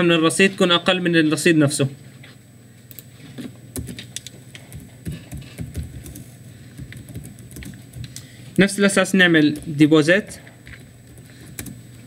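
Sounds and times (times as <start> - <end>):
keyboard typing clicks: 3.8 - 8.2, 10.7 - 11.8.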